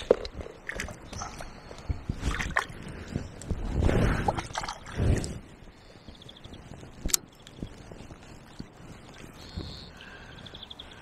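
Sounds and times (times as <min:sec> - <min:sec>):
river water sloshing around legs: 0:00.0 - 0:03.5, 0:04.1 - 0:05.3.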